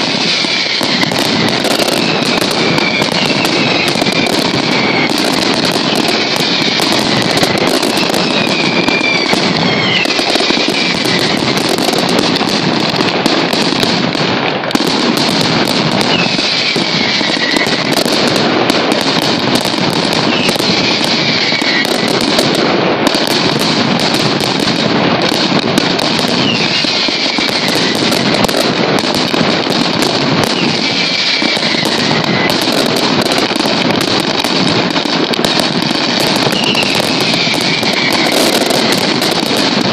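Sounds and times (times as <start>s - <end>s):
firecrackers banging and crackling: 0.0s - 39.9s
falling whistles: 0.3s - 1.1s, 1.7s - 11.6s, 16.0s - 18.0s, 20.3s - 21.9s, 26.4s - 28.0s, 30.5s - 32.5s, 36.4s - 38.5s.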